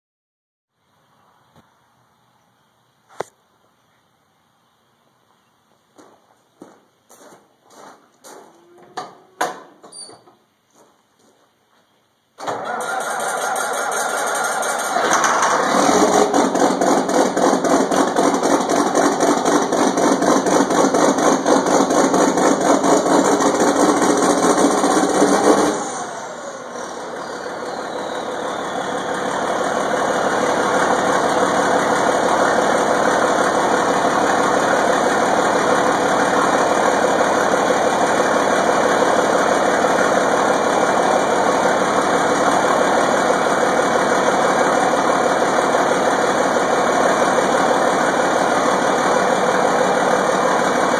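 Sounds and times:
diesel tractor engine revving and idling: 12.4s - 50.9s.

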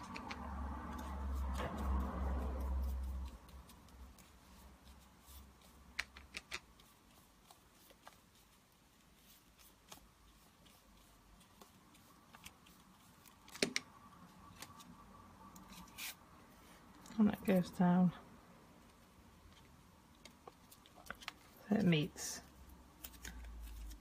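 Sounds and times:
paper brushing and rustling: 6.6s - 13.5s, 22.9s - 24.0s.

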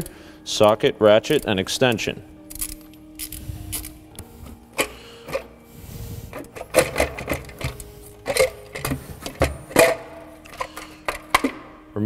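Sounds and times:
metal clicks and knocks: 6.3s - 11.7s.

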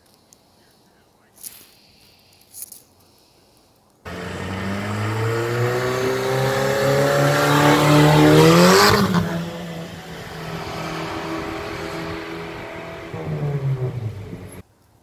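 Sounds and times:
car engine revving: 4.1s - 14.6s.

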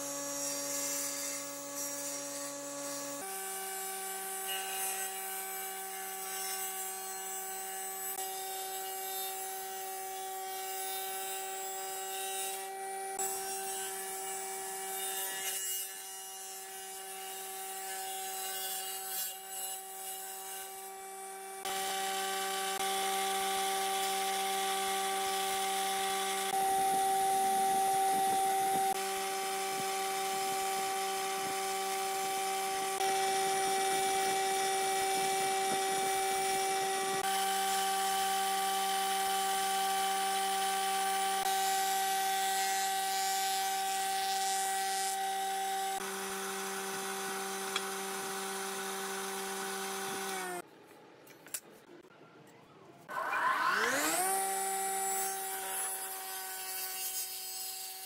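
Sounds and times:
jointer planing wood: 0.1s - 50.6s, 53.1s - 58.0s
table saw ripping wood: 21.6s - 50.6s, 53.1s - 58.0s.

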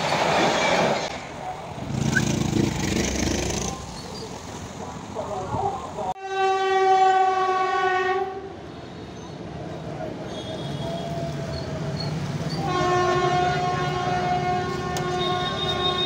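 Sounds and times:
train coaches rumbling over bridge: 0.0s - 16.0s
train horn blowing: 6.2s - 8.6s, 12.6s - 16.0s.

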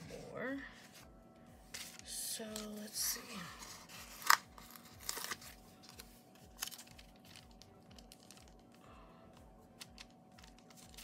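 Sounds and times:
faint background music: 0.0s - 11.0s
stickers peeling and paper rustling: 1.7s - 8.8s, 9.7s - 11.0s.

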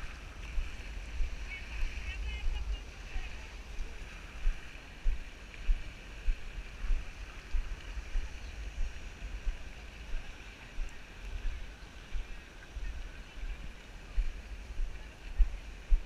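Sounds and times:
faint steady hiss: 0.0s - 16.0s
wind buffeting microphone: 0.0s - 16.0s.

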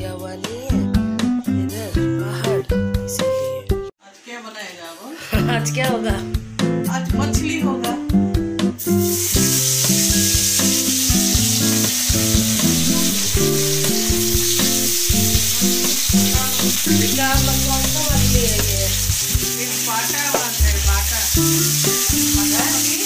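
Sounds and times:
fish sizzling in hot oil: 8.8s - 23.0s.

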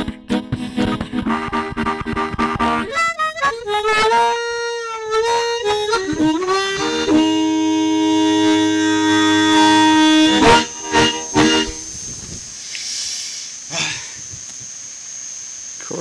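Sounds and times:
harmonica playing: 0.0s - 12.0s.

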